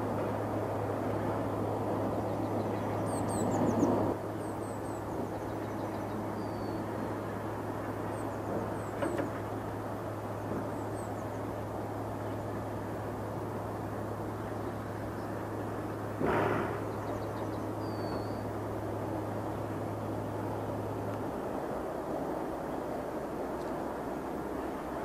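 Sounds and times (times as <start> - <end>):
constant low hum: 0.0 - 25.0
distant jet rumble: 0.0 - 25.0
small birds chirping: 2.1 - 7.3, 16.8 - 18.5.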